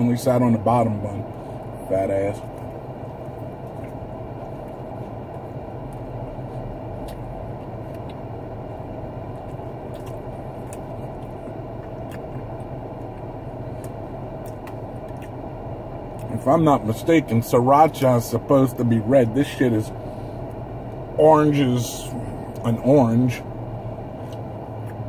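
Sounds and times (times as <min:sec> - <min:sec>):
car idling hum: 0:00.0 - 0:25.0
person chewing food: 0:02.4 - 0:08.4, 0:09.1 - 0:15.5.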